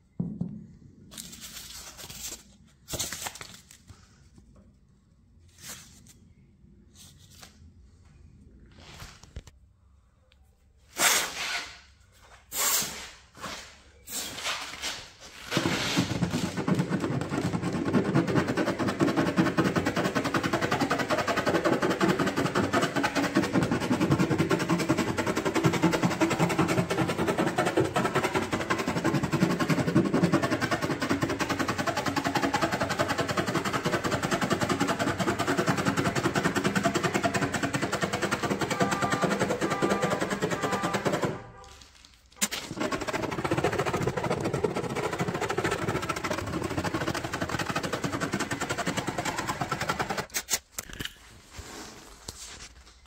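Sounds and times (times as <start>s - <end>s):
handheld tool fast rattle: 15.4s - 41.4s, 42.4s - 50.6s.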